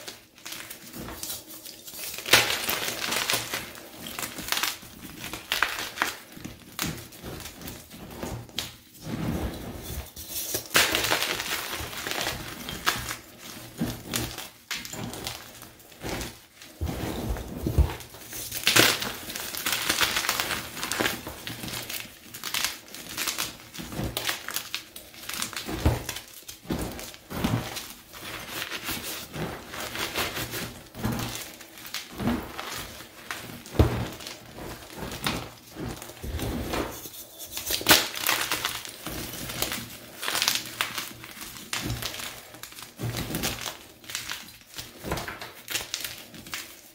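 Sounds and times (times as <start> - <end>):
hands crushing chalk blocks: 0.0 - 8.8, 9.9 - 46.9
sharp cracks of chalk breaking: 1.9 - 7.1, 10.5 - 13.3.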